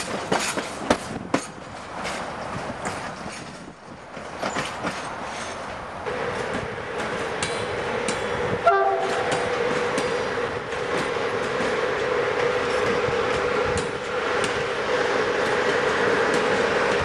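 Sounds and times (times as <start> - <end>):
wheels clicking over rail joints: 0.0 - 17.0
electric locomotive whine: 1.5 - 17.0
locomotive horn blast: 8.6 - 9.5.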